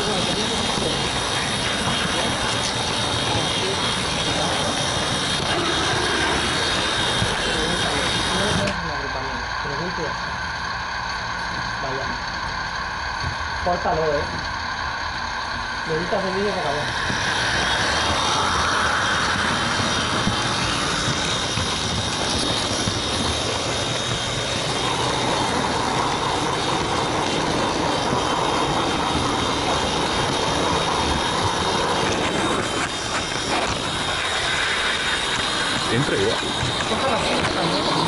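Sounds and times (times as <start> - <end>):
faint high motor whine: 0.0 - 38.0
model train wheels rumbling: 0.0 - 38.0.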